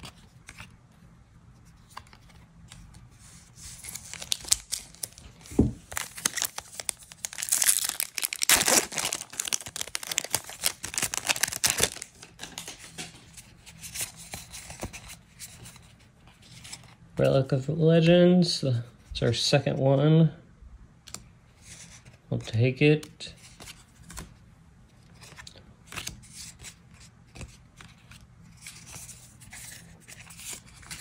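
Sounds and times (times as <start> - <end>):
cards rustling: 1.6 - 17.0, 25.0 - 31.0
foil wrapper tearing and crinkling: 3.8 - 12.7.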